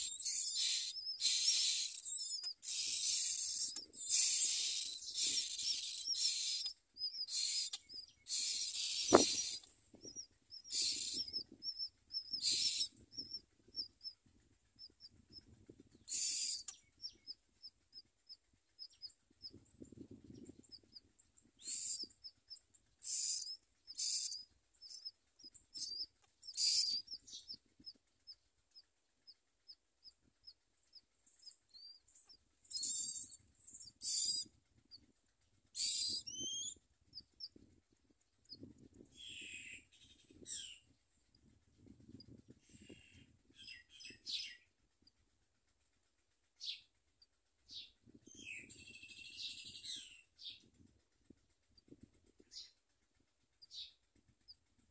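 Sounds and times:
nestlings begging calls: 0.0 - 14.2, 14.8 - 28.0, 31.4 - 34.5, 35.8 - 37.5, 39.2 - 40.8
fast high chirps: 0.0 - 18.1, 18.8 - 28.3, 32.7 - 34.6, 35.8 - 37.6.

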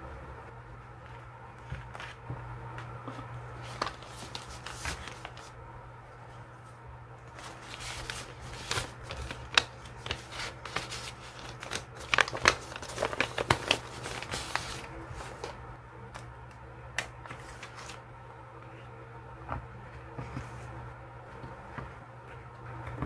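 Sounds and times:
paper pouch crinkling: 3.6 - 5.6, 7.3 - 15.6, 17.2 - 18.0.

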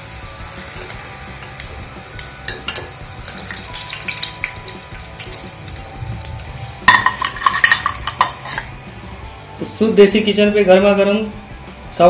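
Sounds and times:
food sizzling in hot oil: 0.0 - 9.4
skimmer clicking against pan: 0.6 - 5.6
loud metallic clank: 6.0 - 8.8.

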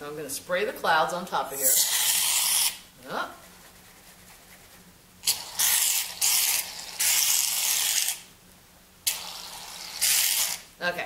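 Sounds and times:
aerosol can hissing: 1.6 - 2.8, 9.1 - 10.6.

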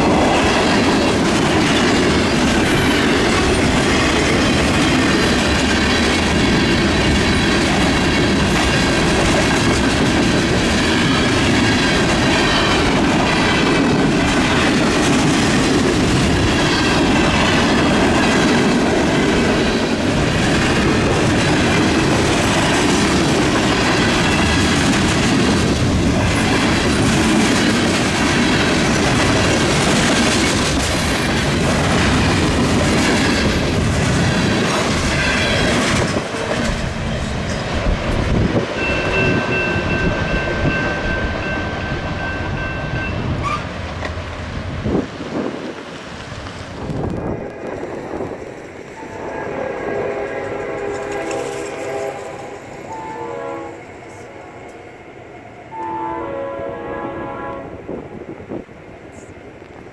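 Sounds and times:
steel wheels clacking over rails: 0.0 - 42.6
freight train rolling past: 0.0 - 59.9.

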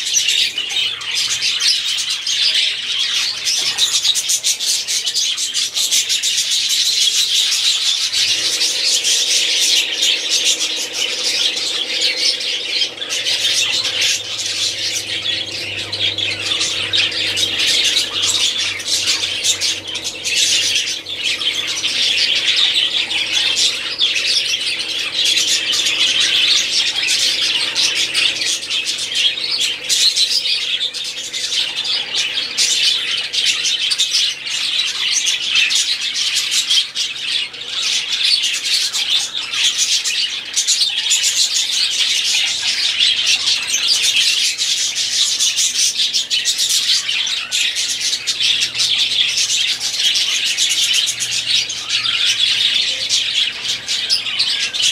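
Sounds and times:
budgerigars chattering and chirping: 0.0 - 54.9.

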